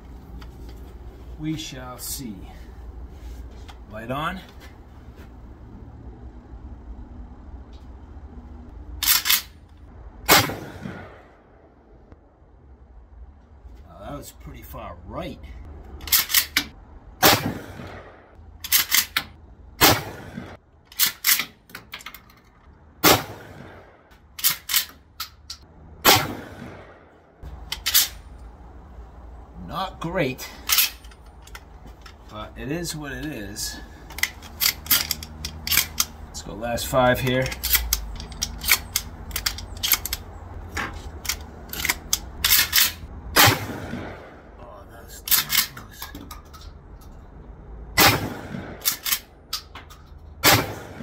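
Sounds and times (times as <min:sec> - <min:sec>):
shotgun blasts with echo: 0:10.3 - 0:11.3, 0:17.2 - 0:18.3, 0:19.8 - 0:20.6, 0:23.0 - 0:24.0, 0:26.0 - 0:27.1, 0:43.4 - 0:44.5, 0:48.0 - 0:48.9, 0:50.4 - 0:51.0
shotgun pump clacking: 0:34.0 - 0:36.2, 0:37.4 - 0:40.3, 0:41.1 - 0:43.0, 0:48.8 - 0:50.0.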